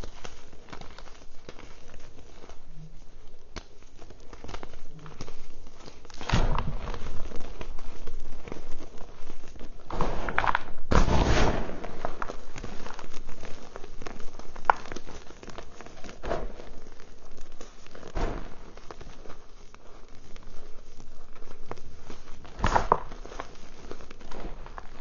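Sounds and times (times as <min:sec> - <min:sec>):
chalk crunching and crumbling: 0:00.0 - 0:25.0
powder and pieces falling into tub: 0:00.0 - 0:25.0.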